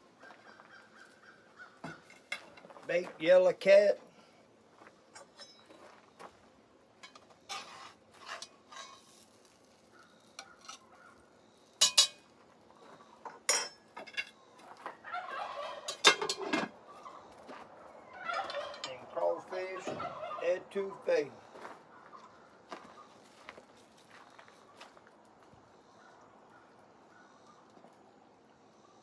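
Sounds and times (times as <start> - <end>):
metal utensils clinking and scraping: 7.0 - 9.3, 11.8 - 12.2, 13.5 - 14.4, 15.8 - 16.7, 18.3 - 19.1.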